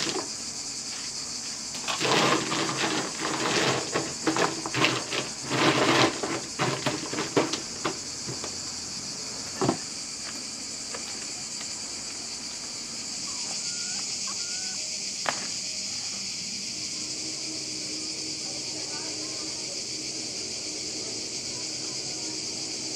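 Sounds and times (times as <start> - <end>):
nuts clattering in plastic crate: 0.0 - 0.3, 1.7 - 8.6
high insect chorus: 0.0 - 22.9
crate knocking on concrete: 1.9 - 8.6.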